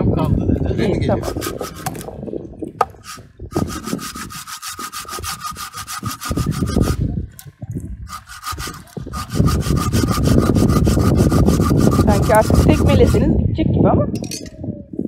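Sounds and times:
hand saw cutting wood: 0:01.2 - 0:02.1, 0:02.8 - 0:07.2, 0:08.0 - 0:13.3.

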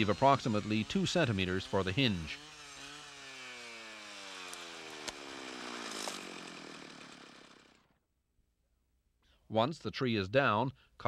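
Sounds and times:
brush saw engine winding down: 0:00.0 - 0:07.9
rush of branches: 0:02.4 - 0:07.4
sharp crack of tree falling: 0:04.4 - 0:07.1.

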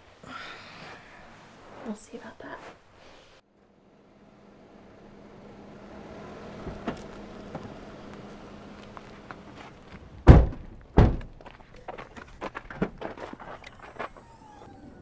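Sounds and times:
heavy thumps: 0:09.9 - 0:11.6.

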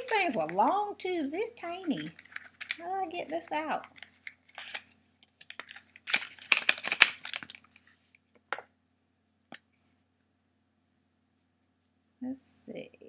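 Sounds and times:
plastic crinkling and tearing: 0:01.8 - 0:07.8.

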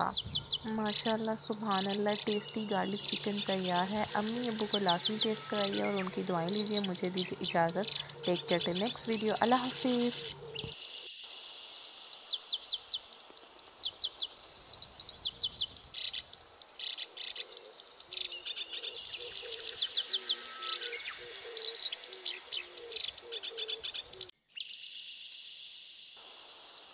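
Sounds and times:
birds chirping and twittering: 0:00.0 - 0:26.9
steady high hiss: 0:18.9 - 0:23.5.

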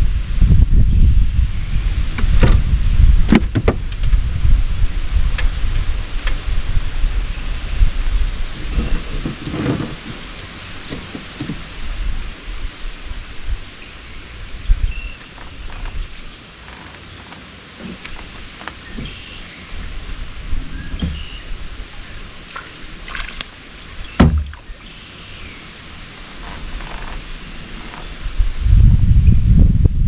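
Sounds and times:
rod and boat handling knocks: 0:20.9 - 0:21.4, 0:24.2 - 0:24.6
sharp knock: 0:24.2 - 0:24.6.

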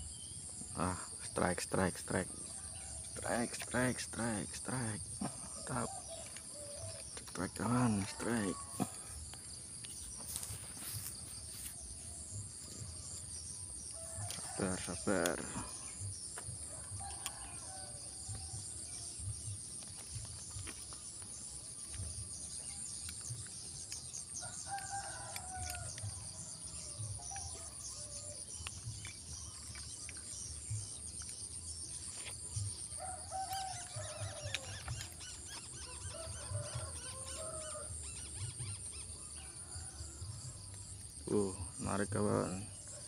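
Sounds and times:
rooster crowing: 0:16.7 - 0:18.5, 0:35.8 - 0:38.0.

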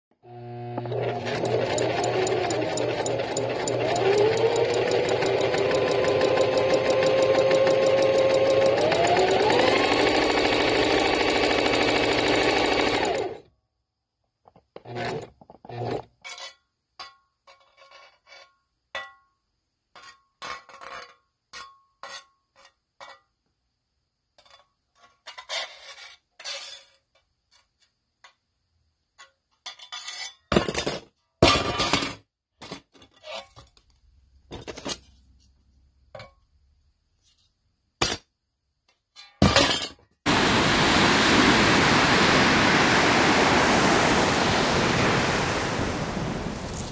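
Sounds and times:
rapid machine whir: 0:00.4 - 0:13.4, 0:40.3 - 0:46.9.

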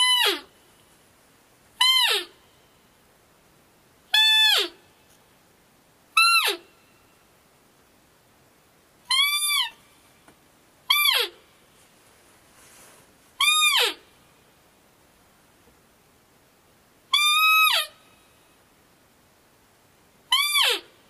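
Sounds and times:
high-pitched deer calls: 0:00.0 - 0:00.6, 0:01.8 - 0:02.8, 0:04.1 - 0:05.1, 0:06.1 - 0:07.0, 0:09.0 - 0:10.1, 0:10.8 - 0:11.6, 0:13.4 - 0:14.4, 0:17.1 - 0:18.4, 0:20.2 - 0:21.0.

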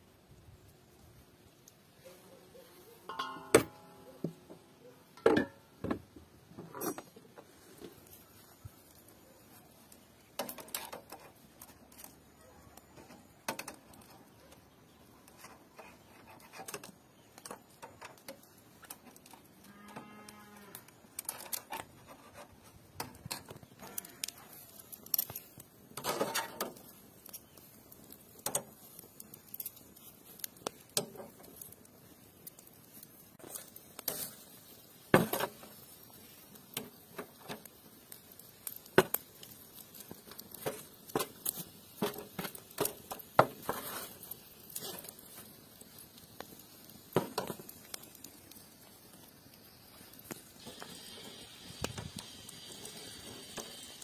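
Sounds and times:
metal skewers clinking on grill: 0:03.1 - 0:04.2
cow mooing: 0:19.7 - 0:20.8.

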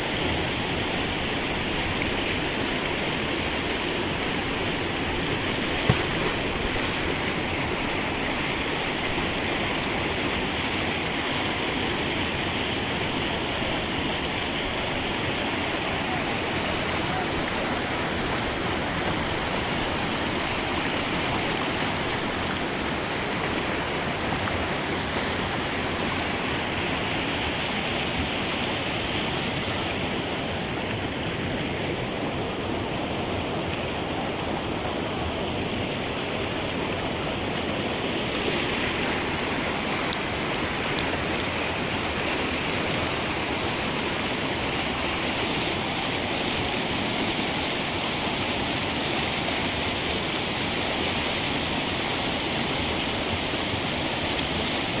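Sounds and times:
water rushing over rocks: 0:00.0 - 0:55.0.

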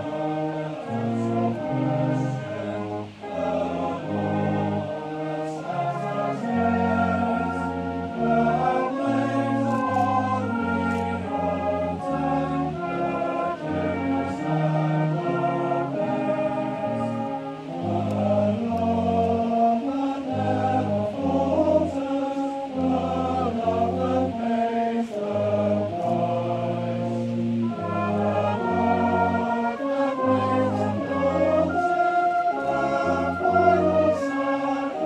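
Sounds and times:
brass band playing a hymn: 0:00.0 - 0:35.0.

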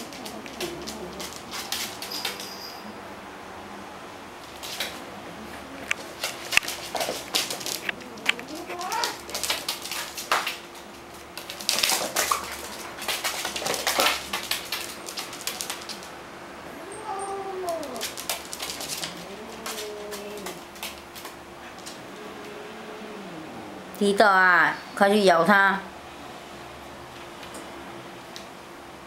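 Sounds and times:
paws clicking on wooden floor: 0:00.0 - 0:02.7, 0:04.4 - 0:16.2, 0:17.0 - 0:22.5.

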